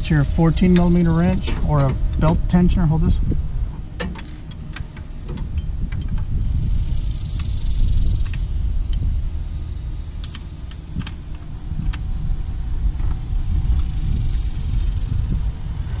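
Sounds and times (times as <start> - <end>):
low rumble: 0.0 - 16.0
wrench clinking on metal: 4.0 - 4.8.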